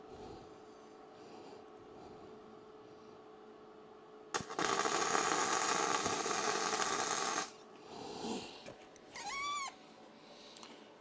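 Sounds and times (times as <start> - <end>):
electric arc welding crackle: 4.4 - 7.6.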